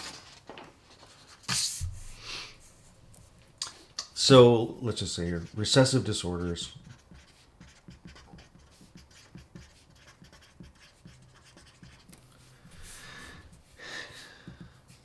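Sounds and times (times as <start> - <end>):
marker scratching on paper: 1.2 - 2.0, 4.9 - 13.8.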